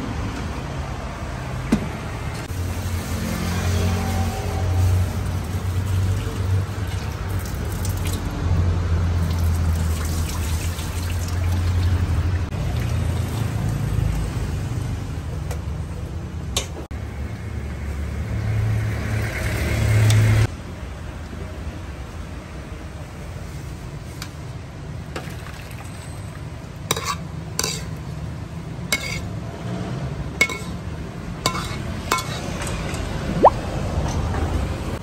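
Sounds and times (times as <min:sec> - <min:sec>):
water splashing and running: 0:09.2 - 0:13.8.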